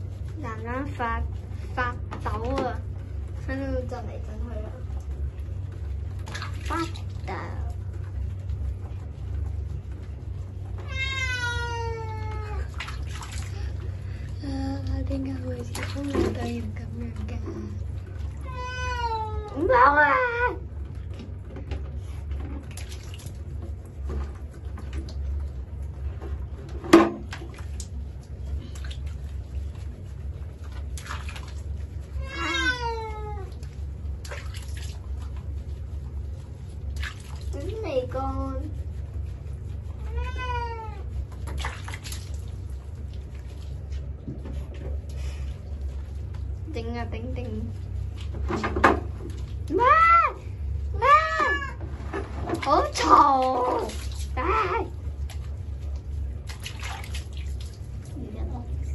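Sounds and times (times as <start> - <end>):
cat meowing: 10.8 - 12.7, 18.3 - 20.6, 32.2 - 33.6, 40.0 - 41.0, 51.0 - 51.8.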